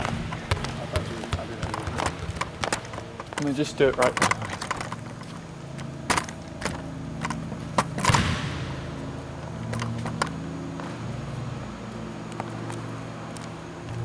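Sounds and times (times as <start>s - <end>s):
footsteps on hardwood floor: 0.0s - 8.0s
steady low hum: 0.0s - 14.0s.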